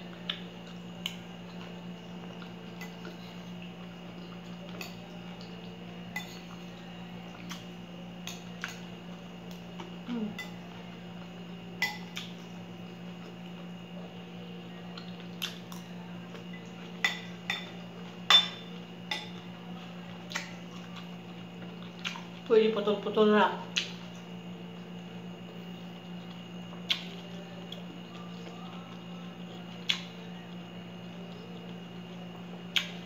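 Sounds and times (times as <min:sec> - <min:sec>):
steady low hum: 0:00.0 - 0:33.0
fork clinking on ceramic bowl: 0:16.5 - 0:19.4.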